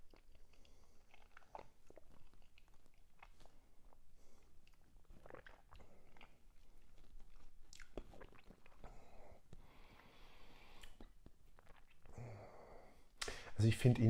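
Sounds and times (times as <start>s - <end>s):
lip smacks and tongue clicks: 0.0s - 9.7s, 10.6s - 12.2s
wet mouth chewing sounds: 0.0s - 12.2s.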